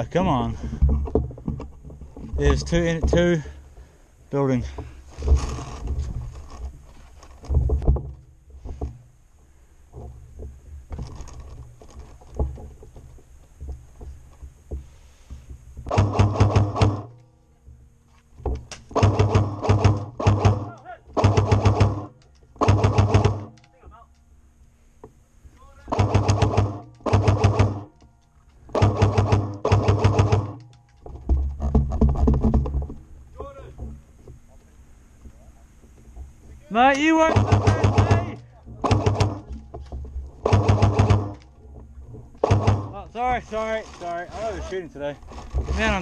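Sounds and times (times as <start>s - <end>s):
camera movement rumbling and knocks: 0.0s - 3.9s, 4.6s - 23.7s, 25.8s - 46.0s
rapid gun shots: 15.9s - 17.1s, 18.9s - 23.5s, 25.9s - 27.9s, 28.7s - 30.6s, 37.3s - 39.4s, 40.4s - 41.4s, 42.4s - 42.9s.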